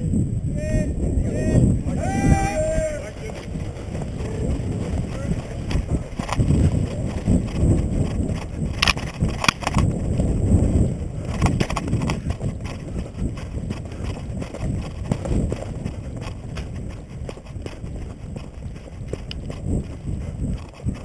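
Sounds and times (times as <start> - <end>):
footsteps on dirt path: 1.0 - 21.0
rustling of vegetation and gear: 1.8 - 21.0
sharp clicks: 7.5 - 9.9.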